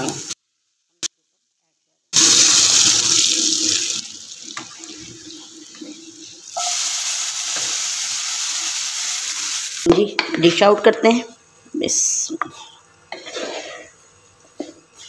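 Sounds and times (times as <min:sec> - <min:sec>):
hot oil sizzling: 0:00.0 - 0:00.4, 0:02.1 - 0:10.0.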